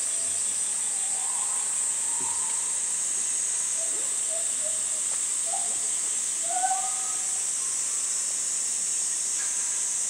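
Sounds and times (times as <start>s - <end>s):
cicada chorus drone: 0.0s - 10.0s.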